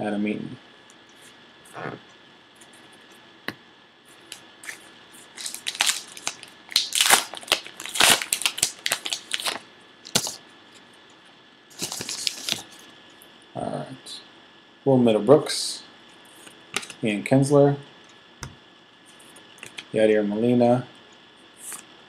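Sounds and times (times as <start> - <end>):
wrapper tearing and crinkling: 5.4 - 10.4, 11.7 - 12.8.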